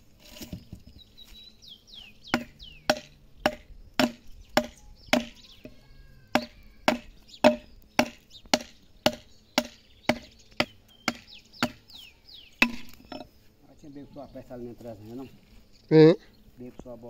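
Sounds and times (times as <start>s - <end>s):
steel blade chopping wood: 2.4s - 5.4s, 6.4s - 11.8s, 12.6s - 13.3s.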